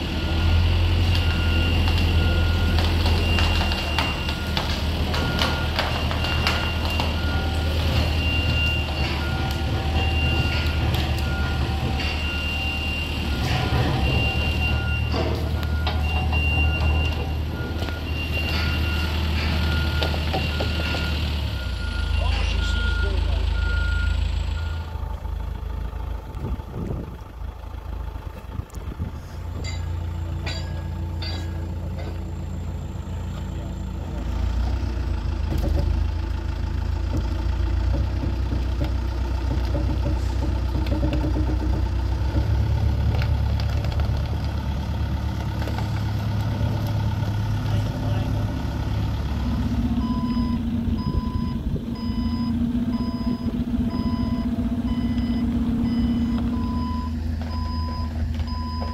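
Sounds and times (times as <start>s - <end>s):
reversing alarm beeping: 0.0s - 25.1s, 47.6s - 58.9s.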